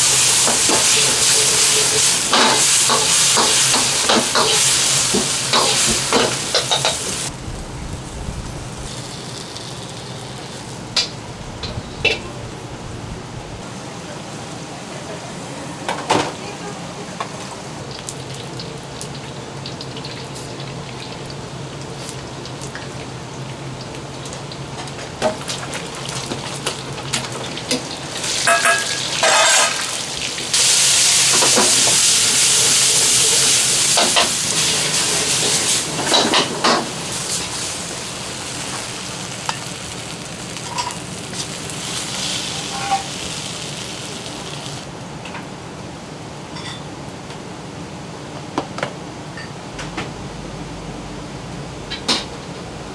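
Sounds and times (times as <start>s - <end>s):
food sizzling in wok: 0.0s - 13.8s, 17.2s - 45.0s
metal clanking against wok: 0.1s - 7.3s, 27.6s - 29.9s
steady low hum: 7.3s - 13.6s.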